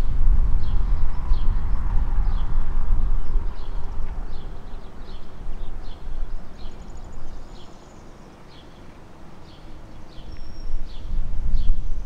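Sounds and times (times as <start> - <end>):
low rumble: 0.0 - 7.5.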